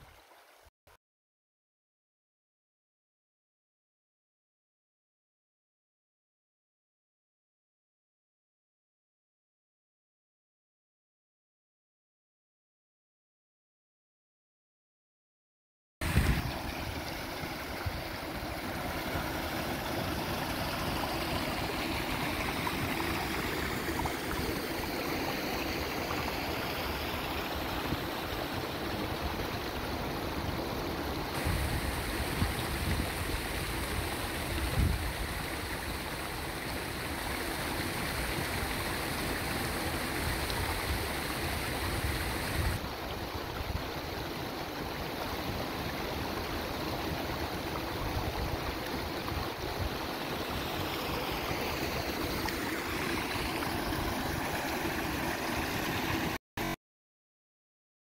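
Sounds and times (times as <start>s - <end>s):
stream water rushing: 16.0s - 56.8s.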